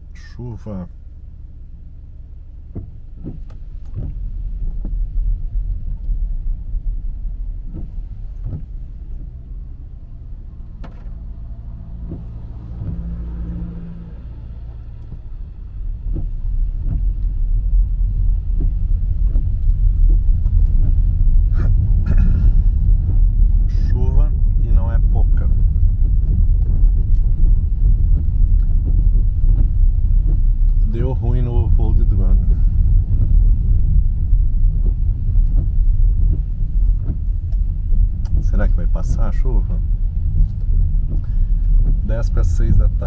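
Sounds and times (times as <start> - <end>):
car engine and road rumble: 0.0 - 43.0
short knocks and clicks: 2.7 - 6.2, 7.6 - 9.4, 10.5 - 13.3, 14.7 - 17.4, 18.1 - 22.4, 34.7 - 43.0.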